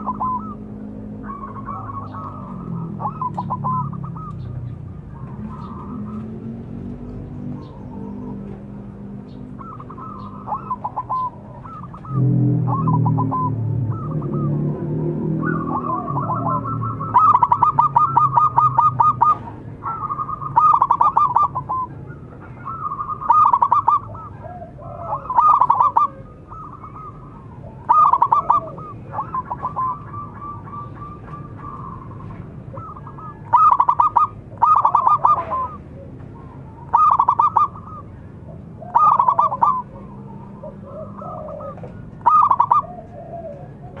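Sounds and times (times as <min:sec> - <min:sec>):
dove cooing: 0:00.0 - 0:44.0
fainter lower bird calls: 0:00.0 - 0:44.0.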